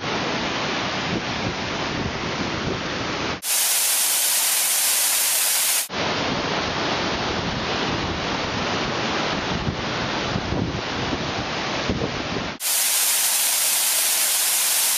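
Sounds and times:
waterfall rushing: 3.4 - 5.9, 12.6 - 14.9.

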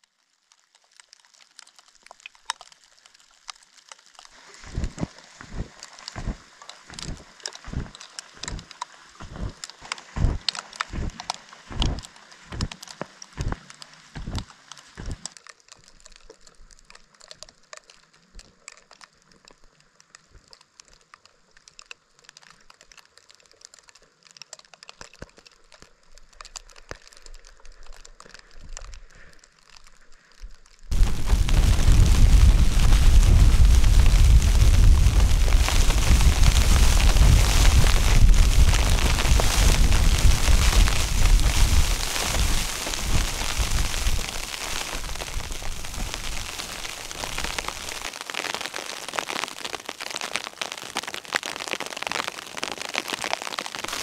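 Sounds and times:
snowshoe footsteps crunching snow: 4.7 - 12.8, 30.9 - 54.0.

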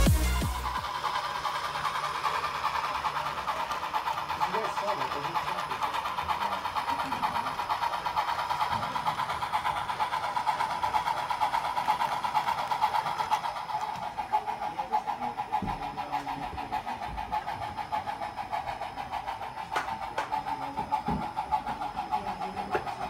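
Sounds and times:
model train running on track: 0.0 - 23.0
faint voices: 13.9 - 23.0.

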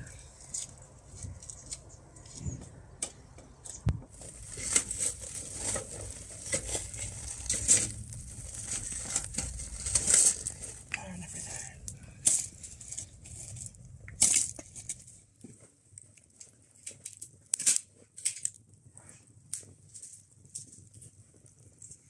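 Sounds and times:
wood fire crackling and popping: 0.0 - 22.0.

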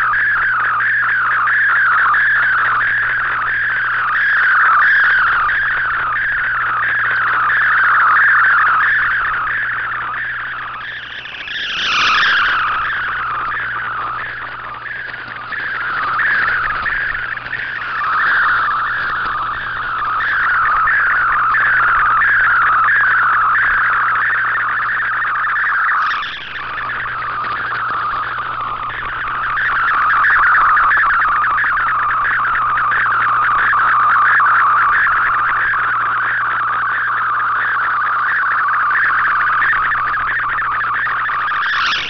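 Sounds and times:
warbling digital radio tone: 0.0 - 42.0
steady low hum: 5.2 - 25.4.

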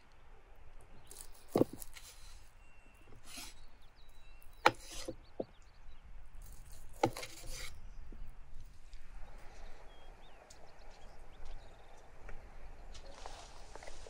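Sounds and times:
faint bird chirps: 0.0 - 14.0
salad leaves rustling in wooden bowl: 1.0 - 2.5, 12.9 - 14.0.

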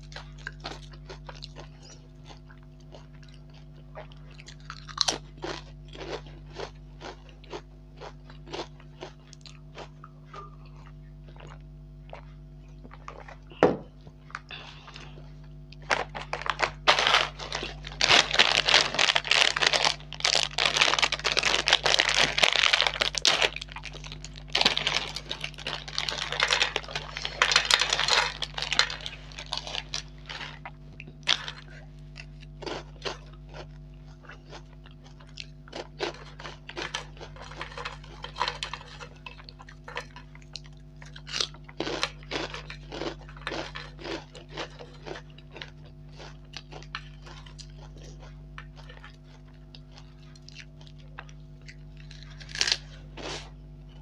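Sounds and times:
chewing crunchy snacks: 0.0 - 54.0
plastic snack packet crinkling: 15.8 - 31.8, 32.6 - 48.2.

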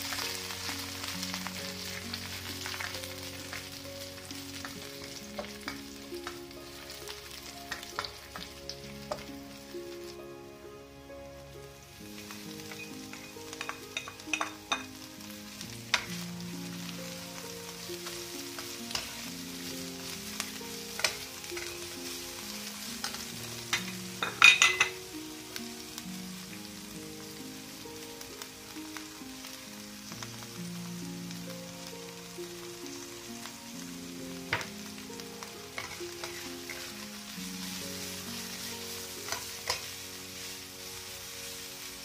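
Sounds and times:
chilies sizzling in hot oil: 0.0 - 42.0
quiet background music: 0.0 - 42.0
spatula scraping a wok: 35.7 - 40.8.

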